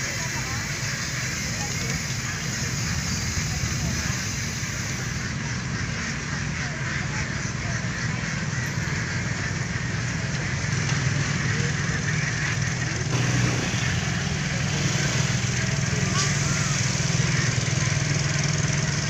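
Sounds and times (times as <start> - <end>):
motorboat engine drone: 0.0 - 19.0.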